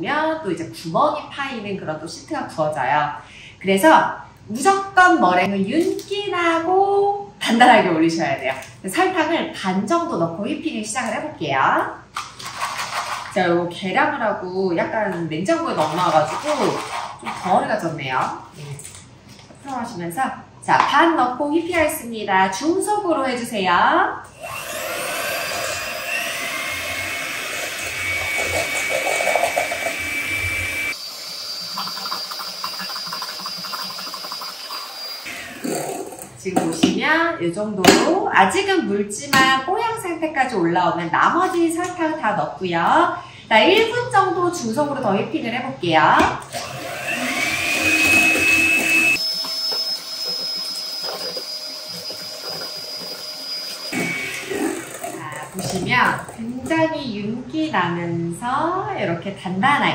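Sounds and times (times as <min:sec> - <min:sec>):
electric hand mixer whirring: 0:24.3 - 0:36.3, 0:46.5 - 0:56.5.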